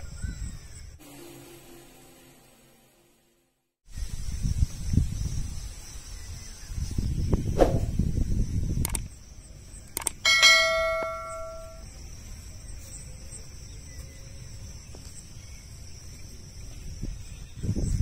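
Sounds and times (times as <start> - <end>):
sharp clicks: 8.8 - 9.1, 9.9 - 10.3
bell dinging: 10.3 - 11.8.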